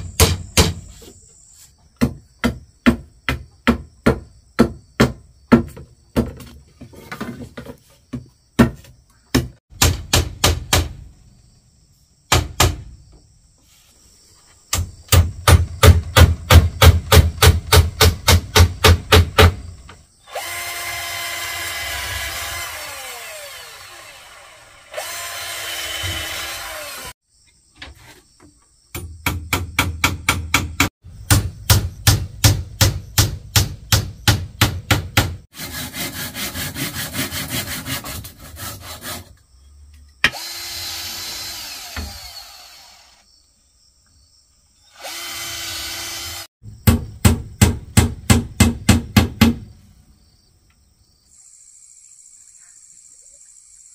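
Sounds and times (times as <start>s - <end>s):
power drill running: 20.3s - 27.2s, 40.3s - 43.2s, 45.0s - 46.5s.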